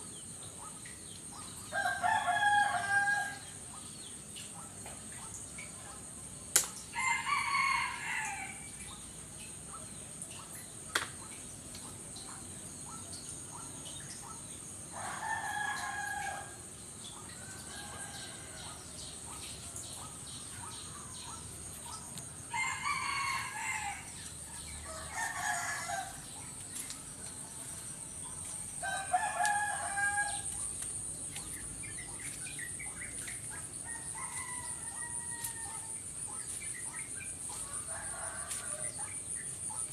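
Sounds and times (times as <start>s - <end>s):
rooster crowing: 1.8s - 3.5s, 22.5s - 24.1s, 24.8s - 26.3s, 28.8s - 30.6s, 33.9s - 36.0s, 37.7s - 38.9s.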